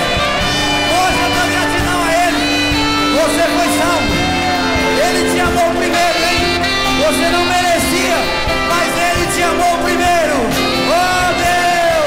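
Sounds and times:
instrumental accompaniment: 0:00.0 - 0:12.0
man singing a hymn: 0:03.1 - 0:12.0.

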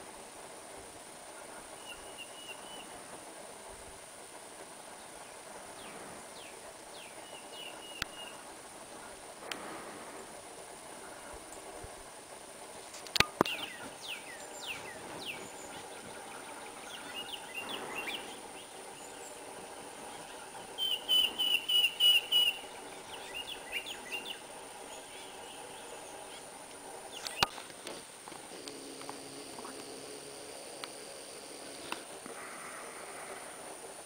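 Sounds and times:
woodpecker calls: 0:04.8 - 0:09.8, 0:13.2 - 0:27.7.

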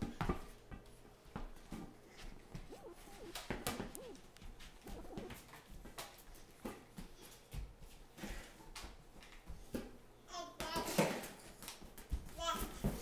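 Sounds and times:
small child cooing: 0:02.7 - 0:04.3, 0:04.9 - 0:05.4.

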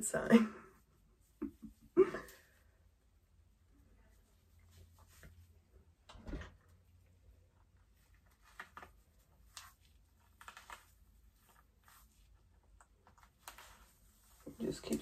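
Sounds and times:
brush rustling through wet hair: 0:04.1 - 0:05.7, 0:07.9 - 0:15.0.

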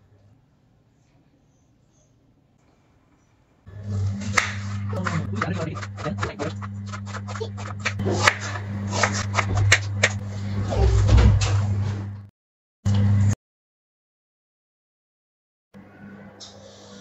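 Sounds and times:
steady low hum: 0:00.0 - 0:12.3
knife slicing onion on board: 0:04.2 - 0:10.2.

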